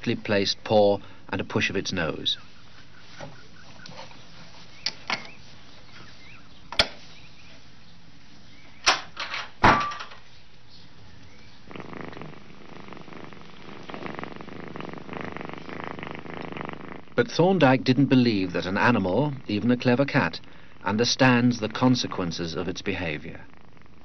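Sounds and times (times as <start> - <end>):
cat purring: 10.8 - 24.0.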